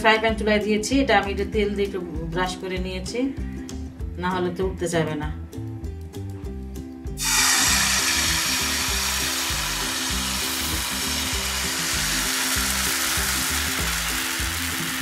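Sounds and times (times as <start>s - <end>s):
background music: 0.0s - 15.0s
batter sizzling in frying pan: 7.2s - 15.0s.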